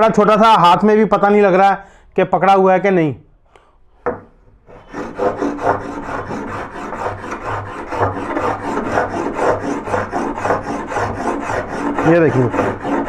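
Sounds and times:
hand plane scraping wood: 4.7 - 13.0.

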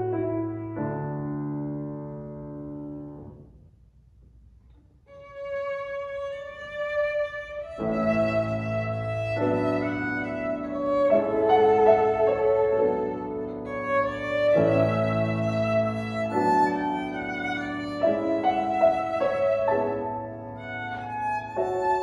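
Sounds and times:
grand piano: 0.0 - 22.0
violin: 5.0 - 22.0.

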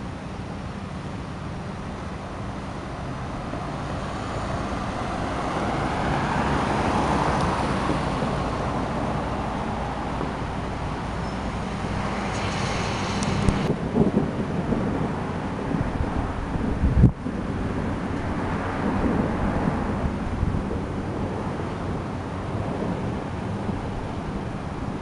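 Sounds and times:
tyre hiss on wet road: 3.4 - 13.7
steady hiss: 9.7 - 13.7.

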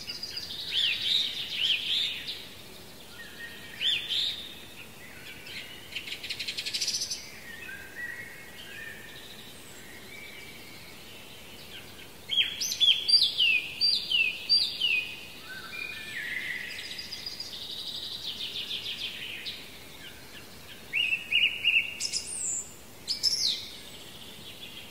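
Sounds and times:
faint steady hiss: 0.0 - 24.9
songbirds singing: 0.0 - 24.9.

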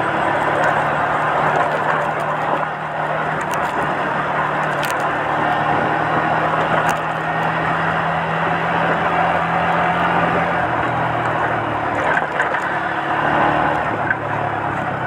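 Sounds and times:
motorcycle engine running: 0.0 - 15.0
wind and road noise: 0.0 - 15.0.

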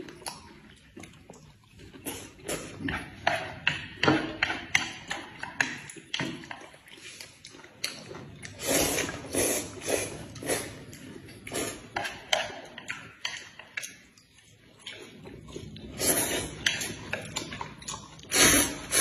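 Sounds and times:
chewing: 0.0 - 19.0
people slurping noodles: 1.8 - 4.9, 8.3 - 12.5, 14.9 - 19.0.

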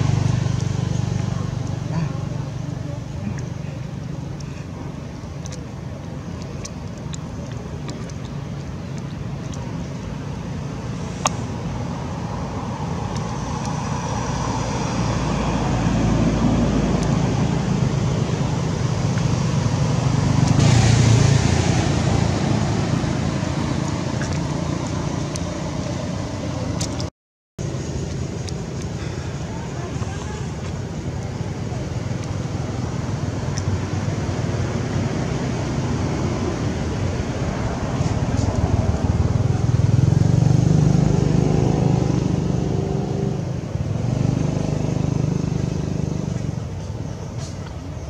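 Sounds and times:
vehicle passing: 0.0 - 3.8, 11.5 - 27.1, 29.0 - 46.8
road traffic rumble: 0.0 - 48.0.

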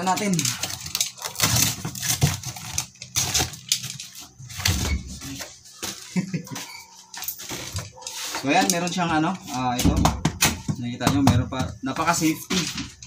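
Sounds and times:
cardboard flaps tearing: 0.0 - 5.4.

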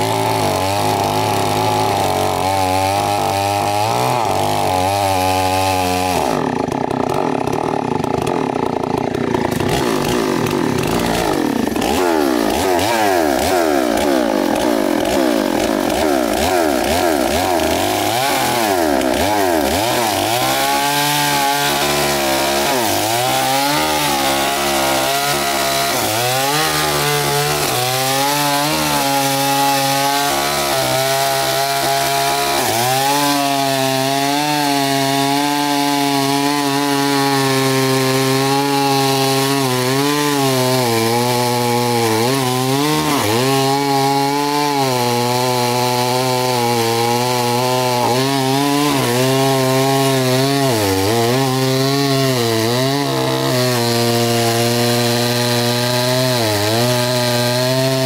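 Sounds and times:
chainsaw cutting wood: 0.0 - 58.0.

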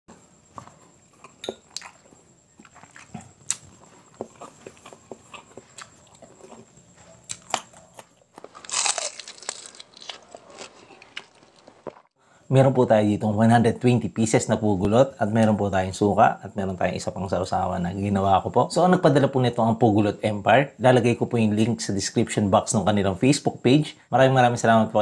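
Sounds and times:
biting and chewing: 0.6 - 12.1.

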